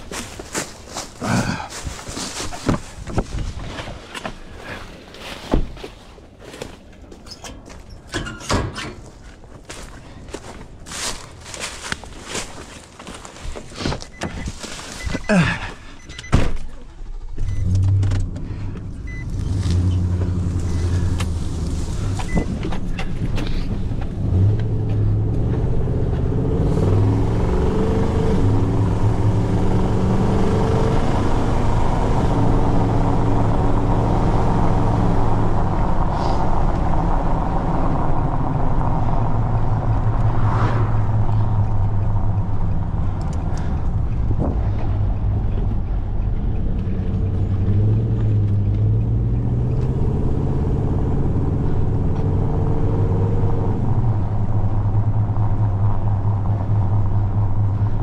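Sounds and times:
truck engine starting and running: 0.0s - 58.0s.

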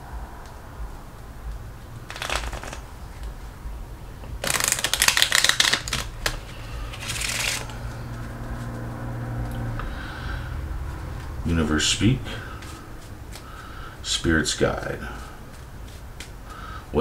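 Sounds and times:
playing cards shuffled: 2.1s - 3.4s, 4.2s - 8.9s, 12.6s - 13.7s, 14.6s - 16.6s.

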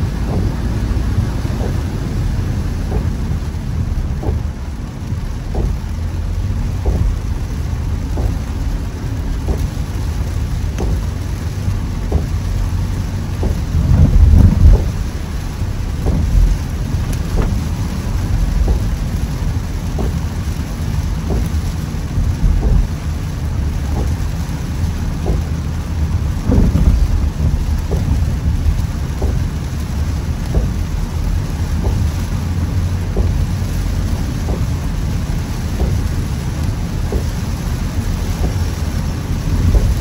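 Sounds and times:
heavy rain on car: 0.0s - 40.0s
tyres rumbling on wet road: 0.0s - 40.0s.

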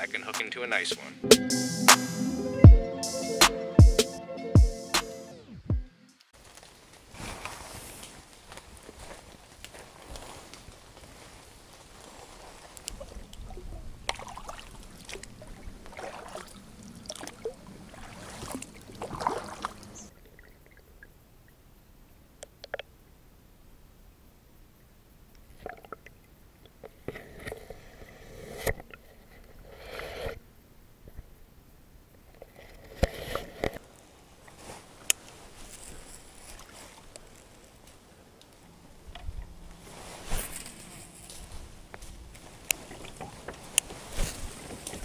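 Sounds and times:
faint water noise: 6.4s - 40.3s, 41.1s - 45.0s
paddle splashing in water: 12.6s - 20.1s.

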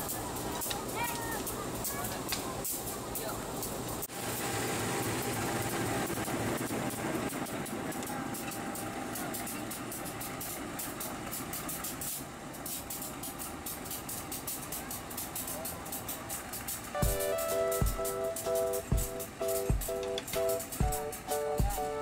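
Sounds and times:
diesel locomotive idling: 0.0s - 22.0s
irregular crackling: 10.9s - 22.0s.

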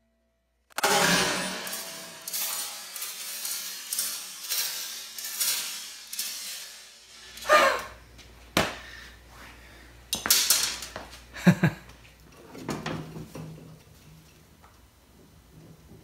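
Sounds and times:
metal parts clattering: 0.8s - 7.5s, 10.2s - 11.0s.

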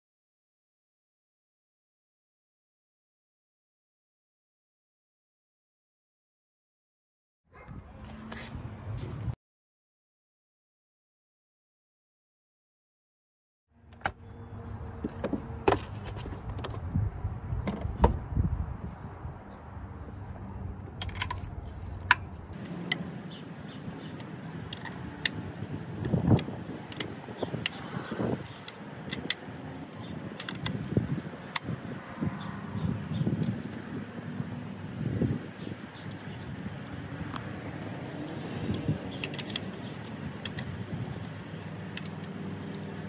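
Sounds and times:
knocks and handling rumble: 13.9s - 18.3s, 19.5s - 23.1s.

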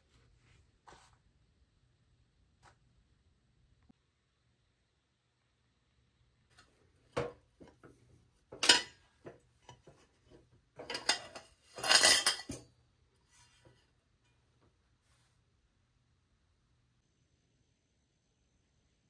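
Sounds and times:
metal cookware clattering: 8.5s - 12.8s.

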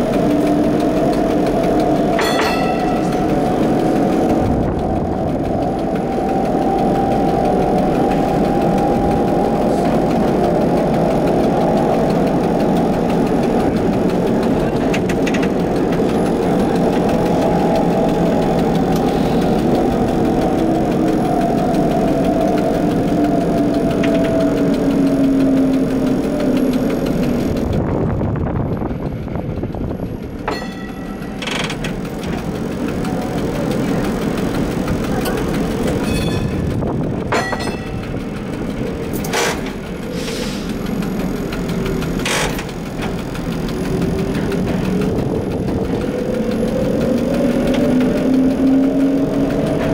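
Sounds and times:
streetcar motor and gear whine: 0.0s - 49.9s
sharp clicks or rings: 2.1s - 3.8s.

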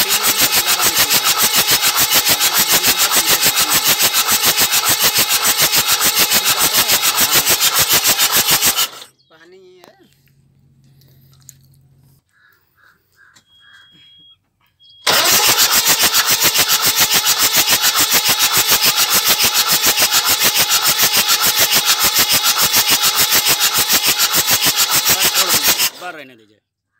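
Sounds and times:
diesel engine cranking chuffing: 0.0s - 9.1s, 15.0s - 26.2s.

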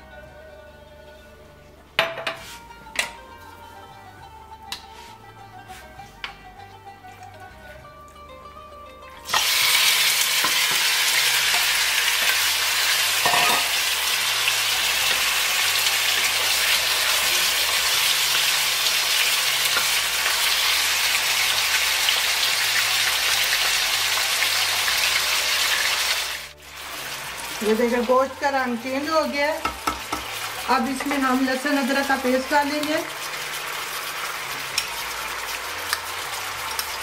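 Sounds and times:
meat sizzling in hot oil: 9.2s - 37.0s.

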